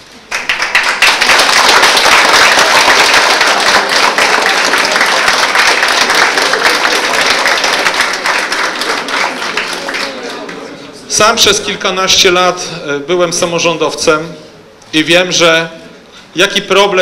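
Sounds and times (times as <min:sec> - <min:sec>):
audience clapping: 0:00.2 - 0:10.8.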